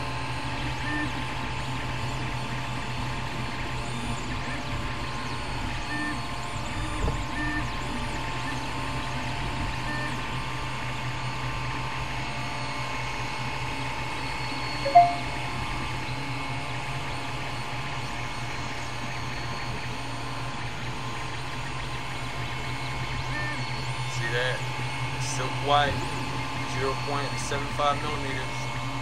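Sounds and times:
printer hum and fan noise: 0.0 - 10.8, 20.6 - 29.0
two-note chirp: 14.9 - 15.5.

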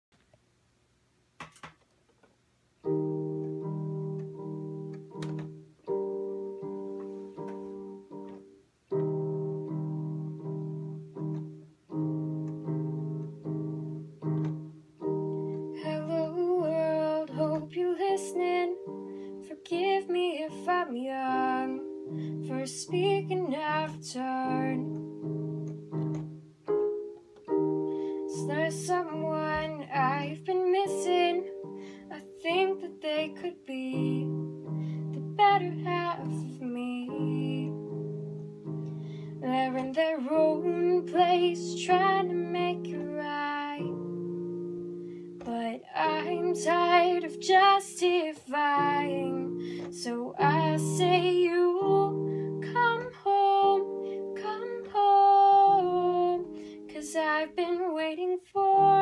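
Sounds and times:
piano chords on keyboard: 2.8 - 59.0
woman singing: 15.7 - 25.2, 28.2 - 38.0, 39.4 - 44.1, 45.4 - 59.0.

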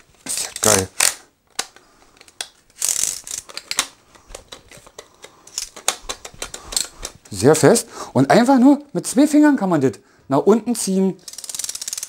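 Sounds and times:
metal tube clicking and rattling: 1.5 - 7.4.

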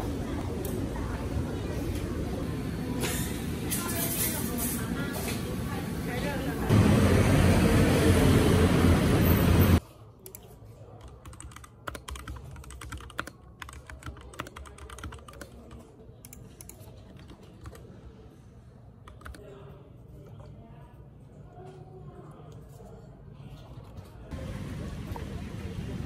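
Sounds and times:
loud street traffic: 4.8 - 9.8, 24.3 - 26.0
keyboard typing: 10.3 - 17.9, 19.1 - 19.4.

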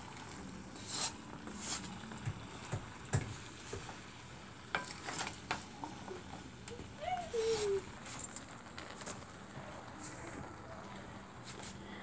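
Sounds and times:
faint sizzle: 0.0 - 12.0.

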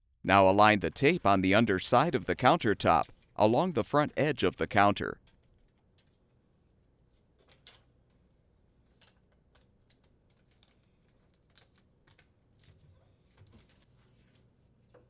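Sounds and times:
foil tape ticks and crinkles: 8.9 - 14.5.

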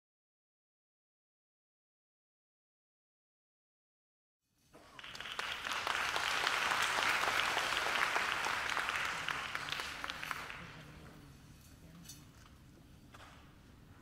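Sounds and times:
audience applauding: 4.8 - 11.0.

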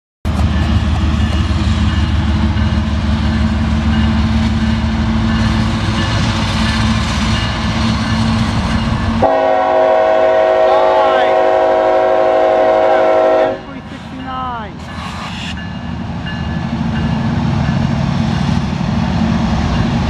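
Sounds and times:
diesel locomotive engines droning: 0.3 - 20.0
locomotive air horn chord: 9.2 - 13.7.

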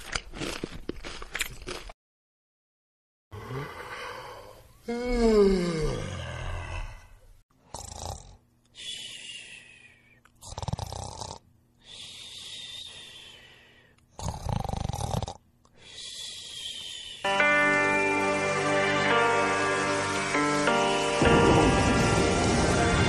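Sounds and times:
person gasping and wheezing: 3.4 - 7.1.

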